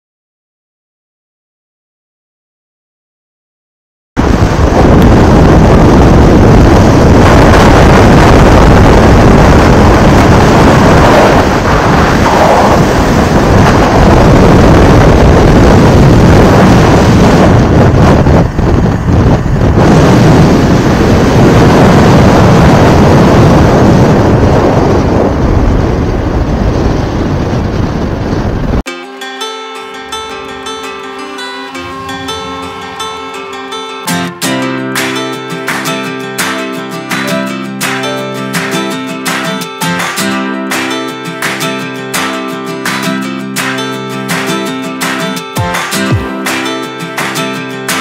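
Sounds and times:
wind rumble on microphone: 4.2s - 28.9s.

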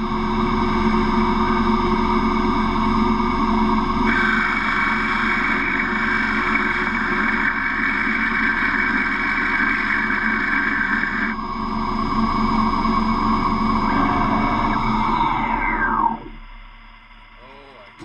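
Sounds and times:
lathe running hum: 0.0s - 18.0s
lathe cutting hiss and whine: 3.9s - 16.3s.

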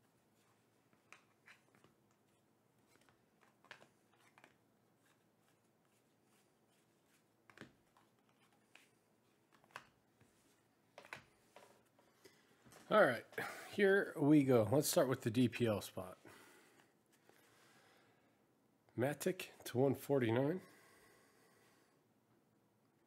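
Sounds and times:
faint clicks and taps: 0.4s - 5.6s, 7.4s - 8.9s, 9.5s - 12.9s.

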